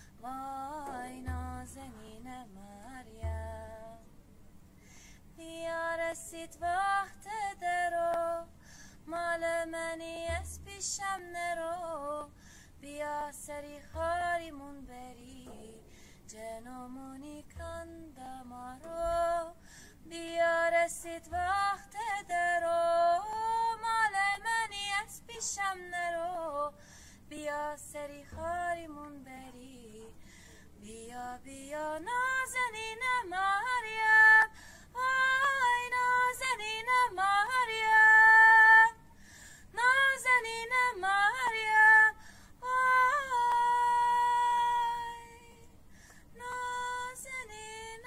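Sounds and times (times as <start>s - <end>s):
woman singing slow song: 0.0s - 4.1s, 4.8s - 48.0s
soft low beat: 0.6s - 4.0s, 9.3s - 11.9s, 13.5s - 26.5s, 27.7s - 30.2s.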